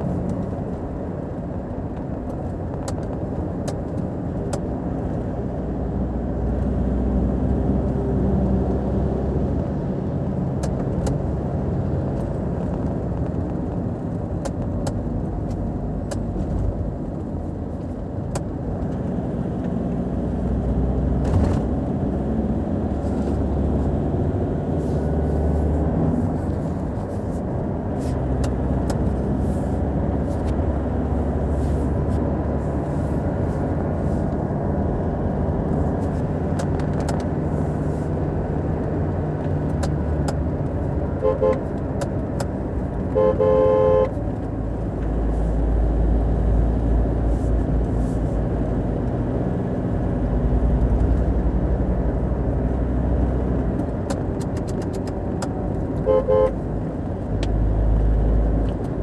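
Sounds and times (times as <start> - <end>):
car road and engine noise: 0.0 - 59.0
car horn toots: 41.2 - 41.7, 43.1 - 44.2, 56.0 - 56.6.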